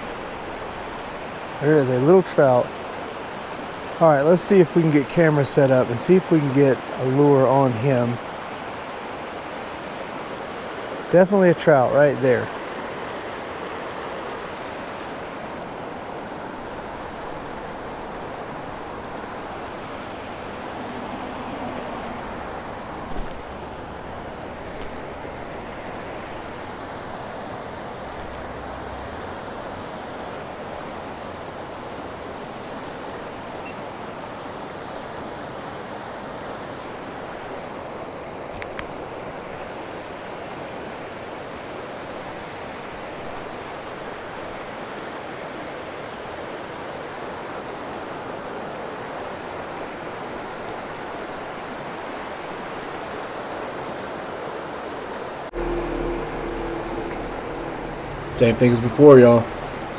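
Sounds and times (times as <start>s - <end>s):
creek rushing over rocks: 0.0s - 33.5s
brief high-pitched sounds: 55.5s - 59.9s.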